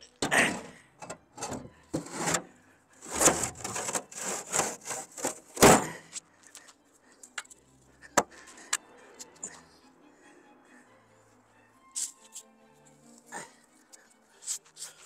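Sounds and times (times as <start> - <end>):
stone scraping over stone and metal: 2.0 - 5.5.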